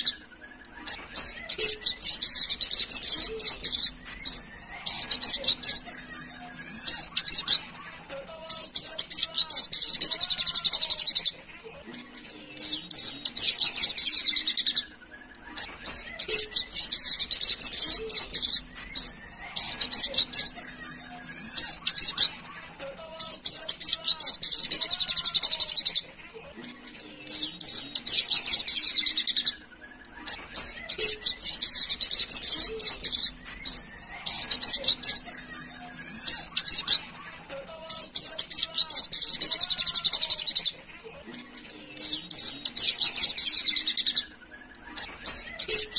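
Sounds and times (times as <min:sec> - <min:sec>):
bird twittering: 0:00.0 - 0:07.7, 0:12.6 - 0:22.4, 0:27.1 - 0:37.2, 0:37.9 - 0:40.8, 0:42.0 - 0:45.9.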